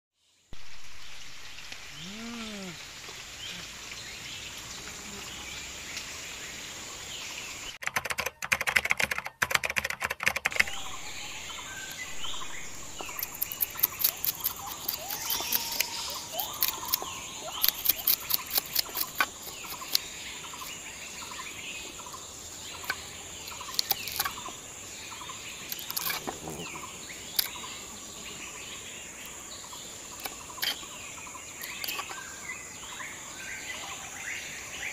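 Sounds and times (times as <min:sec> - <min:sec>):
high insect drone: 0:00.6 - 0:07.6, 0:10.6 - 0:34.9
birds chirping: 0:00.8 - 0:07.8, 0:10.5 - 0:34.9
knife scraping fish scales: 0:13.0 - 0:20.0.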